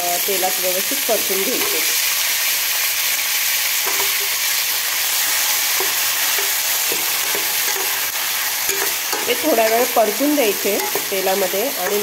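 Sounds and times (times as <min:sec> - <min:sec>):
vegetables sizzling in hot oil: 0:00.0 - 0:12.0
ladle scraping and knocking a pan: 0:03.8 - 0:04.5, 0:05.2 - 0:12.0.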